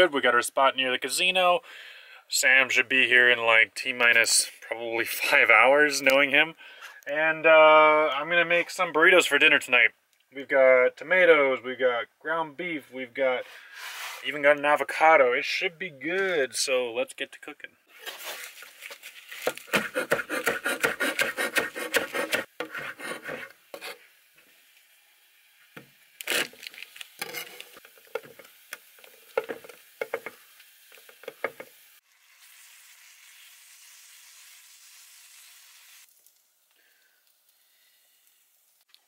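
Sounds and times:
knife chopping on wooden board: 19.7 - 23.9
meat frying in a skillet: 24.0 - 39.0.

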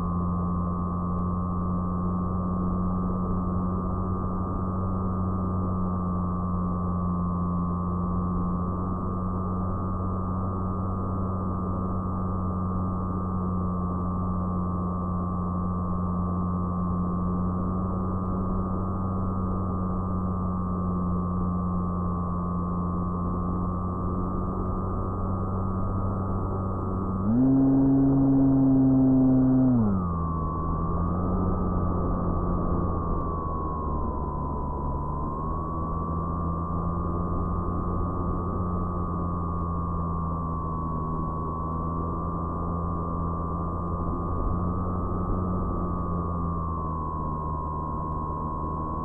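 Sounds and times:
propeller motor droning: 0.0 - 49.0.

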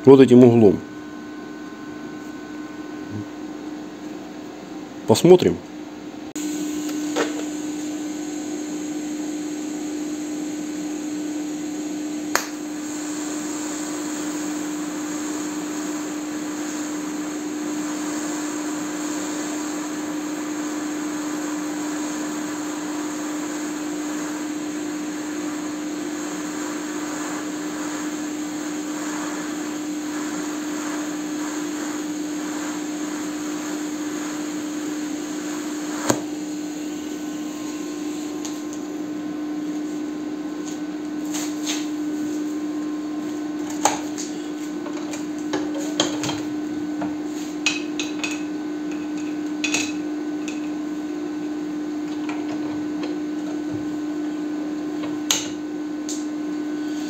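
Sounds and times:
welding inverter humming: 6.2 - 57.0
welding arc hiss: 6.4 - 46.3
welding arc snap: 12.2 - 12.8.

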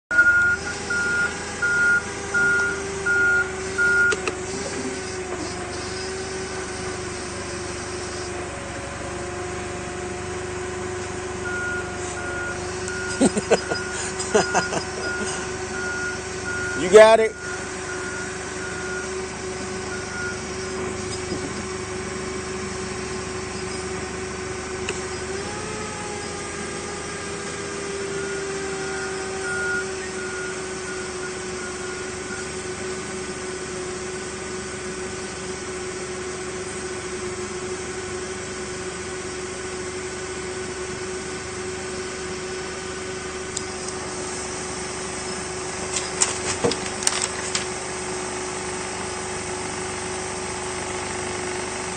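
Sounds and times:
machinery hum: 0.1 - 50.8
forklift whine: 0.1 - 51.9
knocks and clatters: 45.9 - 47.7.

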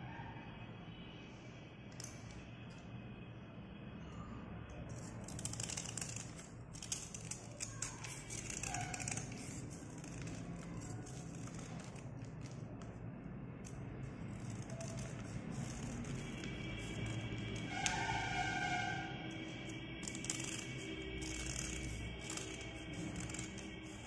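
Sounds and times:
metal blade scraping slate pencil: 4.9 - 12.0, 13.6 - 24.0.

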